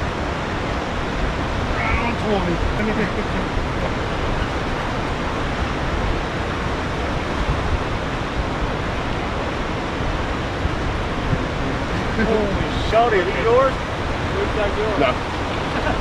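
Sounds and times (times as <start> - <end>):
deep rumble: 0.0 - 16.0
rushing water from dam: 0.0 - 16.0.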